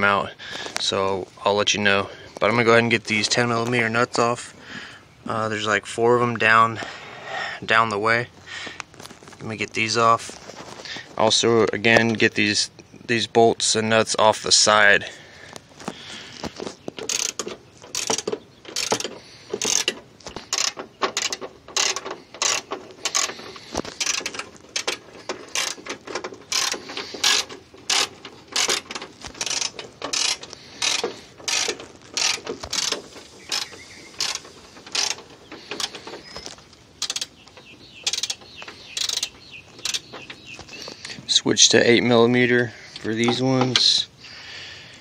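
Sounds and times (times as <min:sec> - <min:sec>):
socket ratchet clicking: 0:17.0 - 0:23.3, 0:37.0 - 0:37.4, 0:38.0 - 0:40.1.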